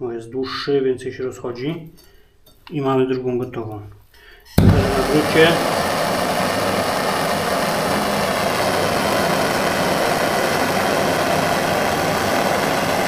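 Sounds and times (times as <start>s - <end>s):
gas torch hissing: 4.6s - 13.0s.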